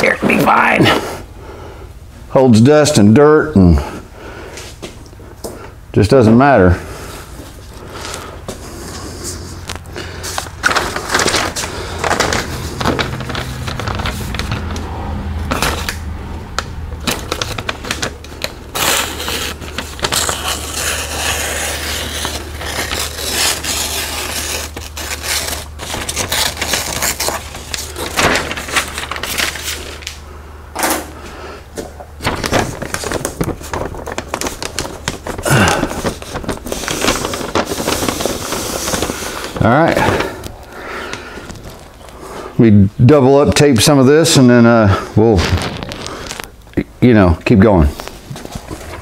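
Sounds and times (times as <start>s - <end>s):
low steady hum: 0.0s - 49.0s
paper crinkling and rustling: 6.6s - 30.2s, 31.8s - 42.4s, 45.2s - 46.6s, 47.6s - 49.0s.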